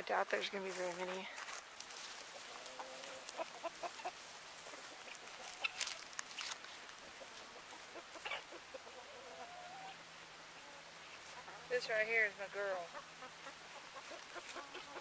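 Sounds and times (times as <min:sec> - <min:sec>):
chickens clucking: 0:00.4 - 0:15.0
sharp crackles: 0:05.0 - 0:07.0.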